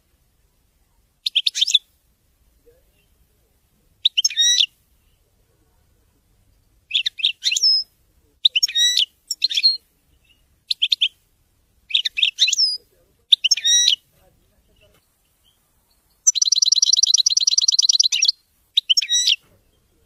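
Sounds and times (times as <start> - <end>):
finch twittering song: 1.2 - 1.9, 4.0 - 5.2, 6.9 - 11.2, 11.9 - 14.0, 14.7 - 20.0.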